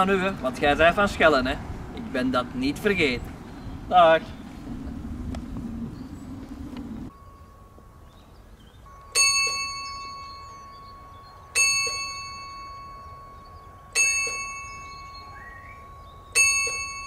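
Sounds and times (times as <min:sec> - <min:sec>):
low outdoor background rumble: 0:00.0 - 0:17.0
bell-like chimes: 0:07.1 - 0:17.0
thin held high tone: 0:07.1 - 0:17.0.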